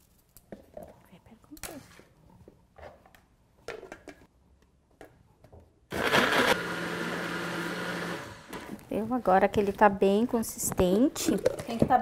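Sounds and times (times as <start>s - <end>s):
blender motor running: 5.9s - 8.8s.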